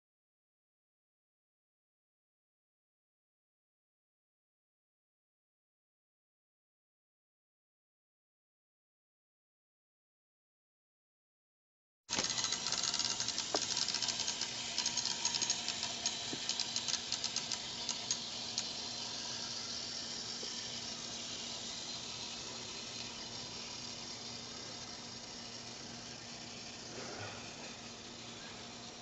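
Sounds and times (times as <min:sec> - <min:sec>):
clockwork ticking and whirring: 0:12.1 - 0:29.0.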